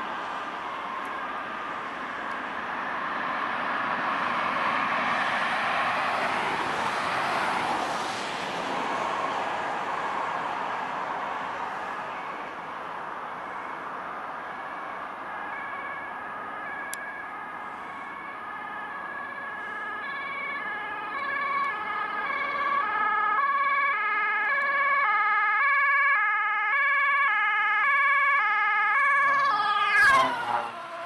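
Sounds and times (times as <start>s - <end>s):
road noise: 0.0s - 31.0s
two-tone siren: 13.4s - 31.0s.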